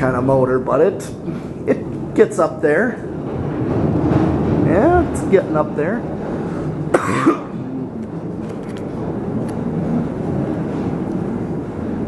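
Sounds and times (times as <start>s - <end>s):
ceiling fan whooshing and humming: 0.0s - 12.0s
person coughing: 6.9s - 7.9s.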